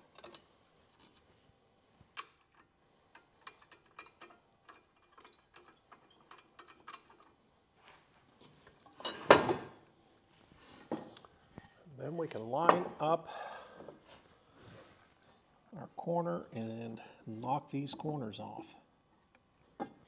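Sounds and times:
metal parts clicking and tapping: 0.1 - 0.4, 2.2 - 7.4.

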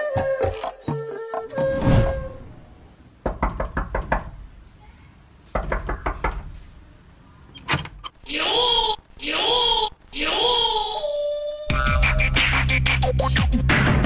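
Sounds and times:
brief whoosh: 1.6 - 2.8
knocking on wooden door: 3.2 - 4.4, 5.5 - 6.5.

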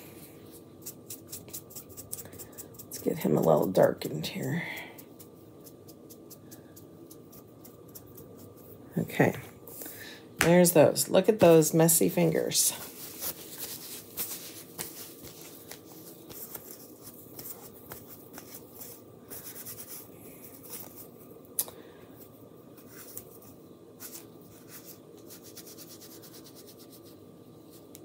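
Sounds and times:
wipe rubbing on fingers: 12.9 - 21.1.

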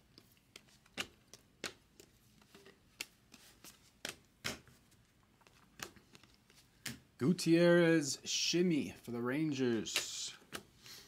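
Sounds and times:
cards flipped off a stack: 0.2 - 7.1.

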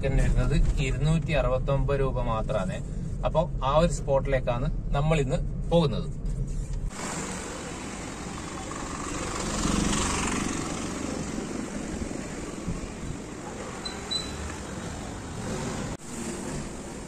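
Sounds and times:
street traffic noise: 0.0 - 17.0
vehicle passing close: 6.9 - 17.0.

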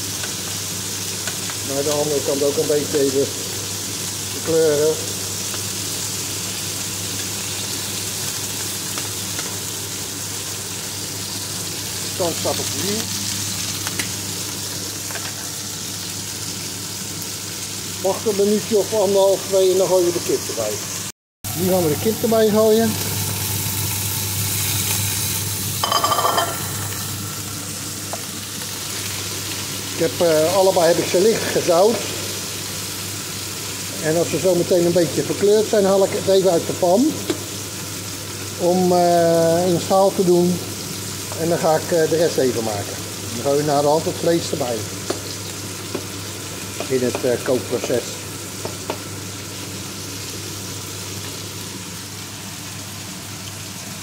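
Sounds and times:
meat sizzling in oil: 0.0 - 54.0.

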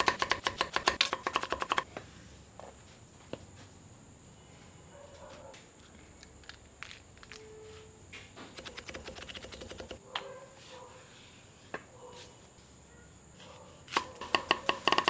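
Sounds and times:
knife chopping on wooden board: 0.0 - 1.8, 13.9 - 15.0.

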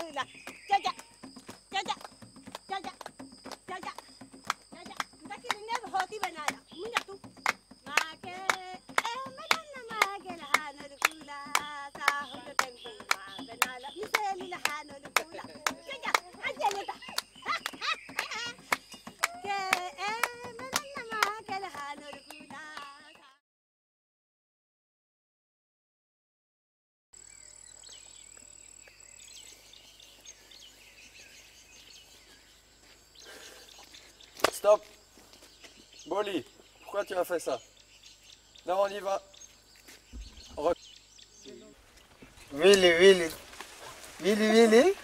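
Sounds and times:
voices singing together: 0.0 - 3.1, 4.7 - 23.4
hand clapping: 0.0 - 23.4, 42.6 - 43.4
high insect whine: 0.0 - 23.4, 27.2 - 45.0.

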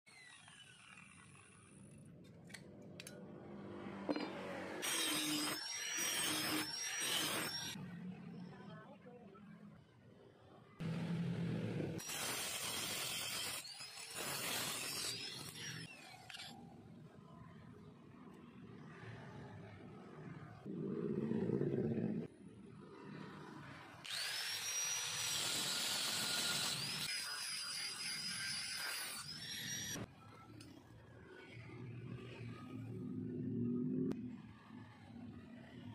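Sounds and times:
angle grinder grinding steel: 4.1 - 7.8, 12.0 - 16.5, 24.0 - 30.1.

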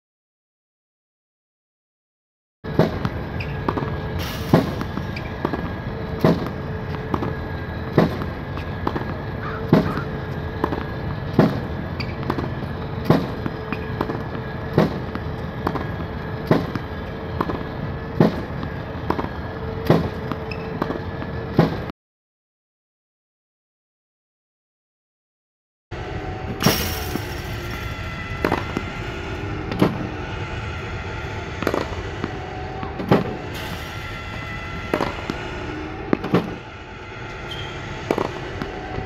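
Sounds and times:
ball machine firing pops: 2.7 - 7.3, 7.9 - 16.8
launch wheels whirring: 2.7 - 21.9, 26.0 - 39.0
racket hitting ball: 2.7 - 21.9, 26.6 - 30.2, 31.5 - 33.5, 34.8 - 35.4, 36.1 - 36.6, 38.1 - 39.0.

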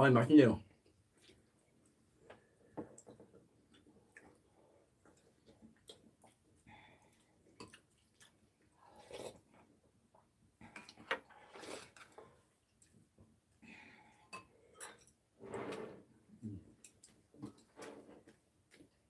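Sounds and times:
faint chewing: 0.7 - 13.1.

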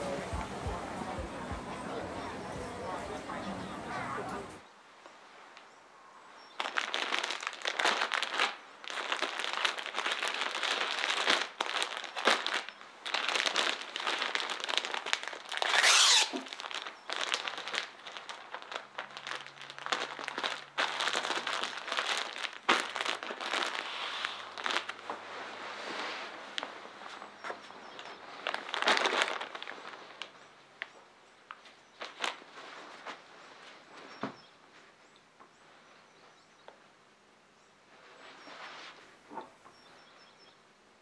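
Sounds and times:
plastic bags crinkling: 6.5 - 25.2, 26.4 - 30.9, 31.5 - 33.2.

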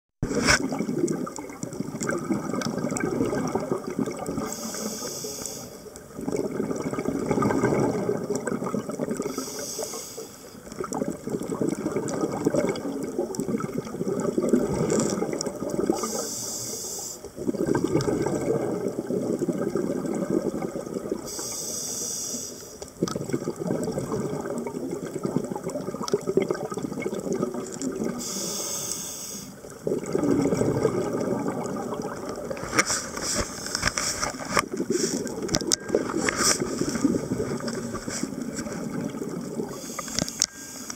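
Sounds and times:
bubbling exhalation underwater: 0.2 - 4.6, 6.0 - 9.4, 10.8 - 16.2, 17.4 - 21.3, 23.0 - 28.2, 29.6 - 40.0
hissing regulator inhale: 4.4 - 5.9, 9.3 - 10.6, 16.0 - 17.3, 21.3 - 22.8, 28.2 - 29.6, 39.7 - 40.9.

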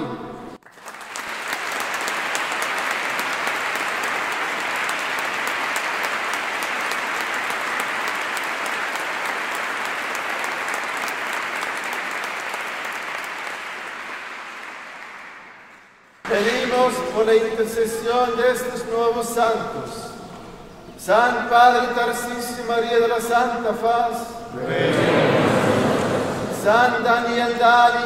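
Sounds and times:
crowd applauding: 0.6 - 16.9, 24.7 - 26.7.

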